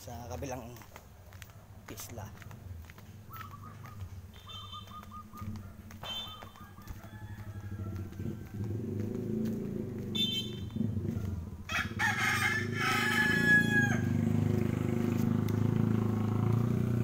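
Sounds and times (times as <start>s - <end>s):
rooster crowing: 6.2s - 9.2s, 11.2s - 14.4s.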